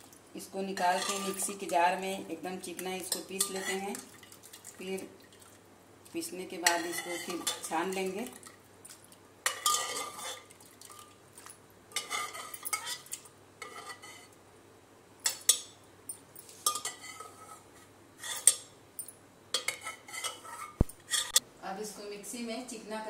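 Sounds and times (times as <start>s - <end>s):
steel ladle scraping and clinking: 0.8s - 1.7s, 3.0s - 4.0s, 6.6s - 8.5s, 9.5s - 11.0s, 11.9s - 14.3s, 16.5s - 18.7s, 19.5s - 21.4s.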